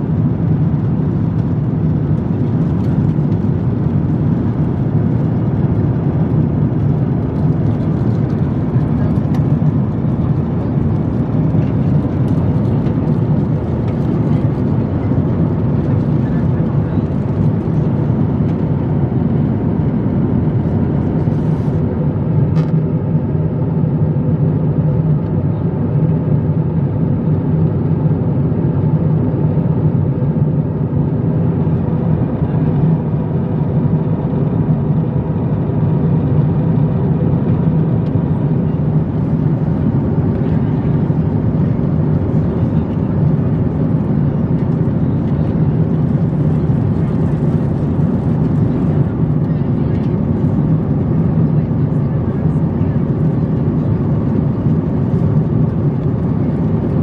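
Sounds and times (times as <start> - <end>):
airplane cabin drone: 0.0 - 57.0.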